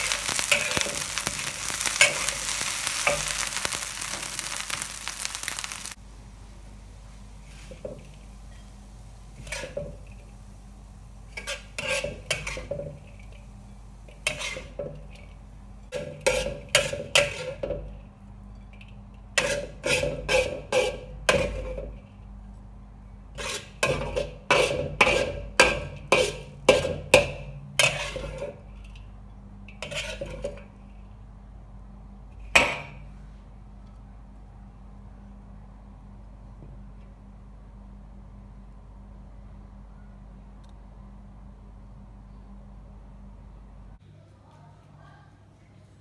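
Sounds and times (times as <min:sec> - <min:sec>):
metal spatula scraping a wok: 0:00.0 - 0:05.9, 0:07.4 - 0:10.4, 0:11.3 - 0:13.4, 0:14.1 - 0:15.3, 0:15.9 - 0:17.8, 0:19.3 - 0:22.0, 0:23.3 - 0:28.7, 0:29.7 - 0:30.7.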